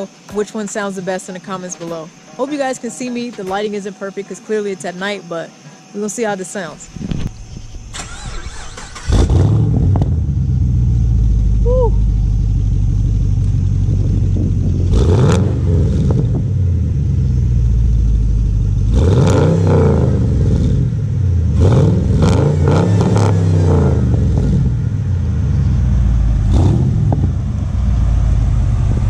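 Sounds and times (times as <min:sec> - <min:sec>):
car engine idling and revving: 0:07.2 - 0:29.0.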